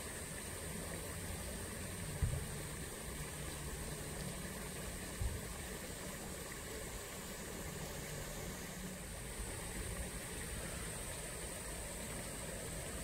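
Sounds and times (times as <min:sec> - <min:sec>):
flowing water rushing: 0:00.0 - 0:13.0.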